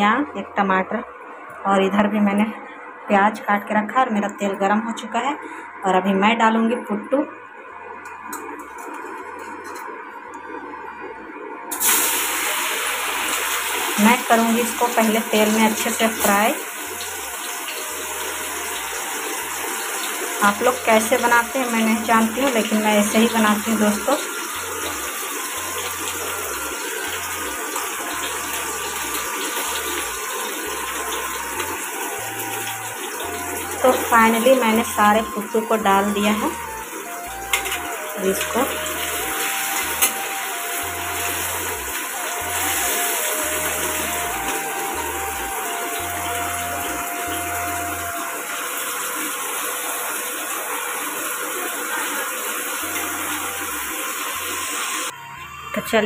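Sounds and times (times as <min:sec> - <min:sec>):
mushrooms sizzling in oil: 0:11.7 - 0:55.1.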